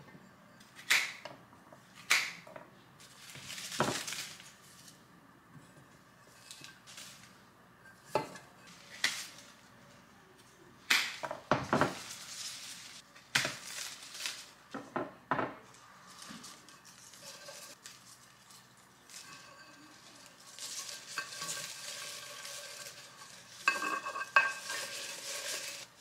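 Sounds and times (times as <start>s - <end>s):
leafy stems rustling: 3.0s - 5.0s, 6.2s - 7.5s, 8.7s - 9.7s, 11.8s - 14.8s, 15.6s - 26.0s
stems clinking against glass vase: 16.2s - 25.9s.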